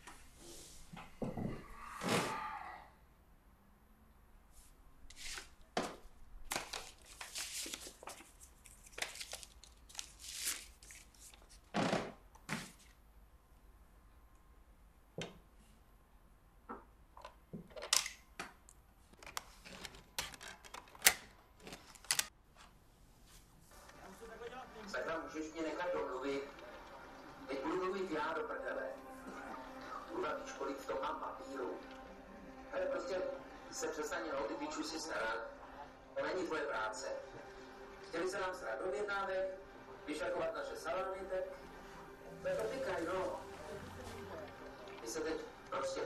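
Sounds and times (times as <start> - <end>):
paper rustling: 5.1 - 11.8, 42.5 - 45.2.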